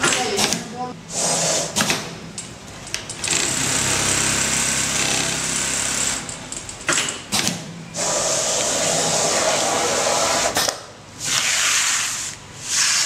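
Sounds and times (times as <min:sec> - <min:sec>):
sewing machine stitching: 0:03.2 - 0:06.3.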